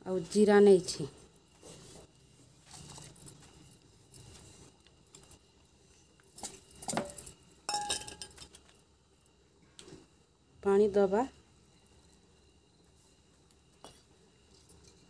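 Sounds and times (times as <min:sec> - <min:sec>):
spices scraped and rustled: 0:00.2 - 0:07.4
metal-on-metal clinks: 0:06.2 - 0:08.8.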